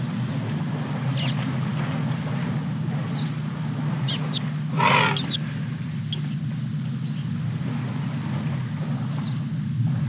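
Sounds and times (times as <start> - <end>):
steady low hum: 0.0 - 10.0
small birds chirping: 1.0 - 2.4, 3.0 - 3.4, 4.0 - 8.3, 9.0 - 9.6
short loud animal call: 4.8 - 5.4.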